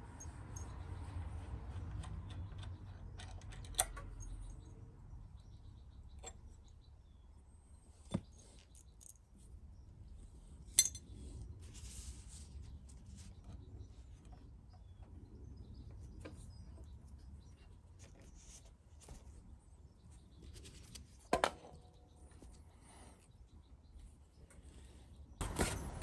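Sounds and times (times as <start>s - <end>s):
metal plate and screws clinking: 10.7s - 11.1s.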